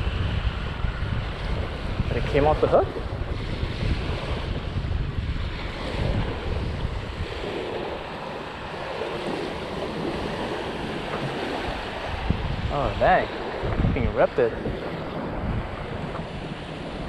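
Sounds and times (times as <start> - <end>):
small waves washing on beach: 0.0 - 17.0
wind buffeting microphone: 0.0 - 17.0.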